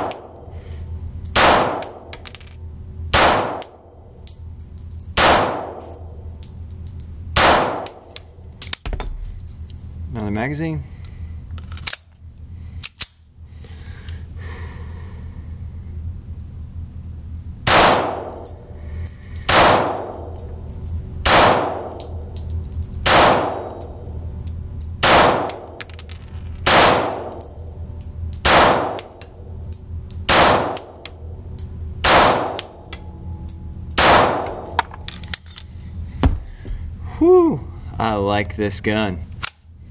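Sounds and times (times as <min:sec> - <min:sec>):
pistol shots indoors: 0:01.3 - 0:02.1, 0:03.1 - 0:03.9, 0:05.2 - 0:06.1, 0:07.4 - 0:08.1, 0:17.6 - 0:18.6, 0:19.4 - 0:20.4, 0:21.2 - 0:22.2, 0:23.0 - 0:24.0, 0:25.0 - 0:25.8, 0:26.6 - 0:27.5, 0:28.4 - 0:29.2, 0:30.3 - 0:31.1, 0:32.0 - 0:32.8, 0:33.5 - 0:34.9.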